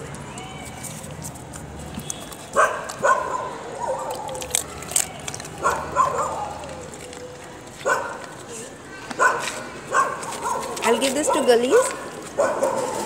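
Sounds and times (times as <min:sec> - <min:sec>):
dog whining in high yelps: 0:05.6 - 0:06.9.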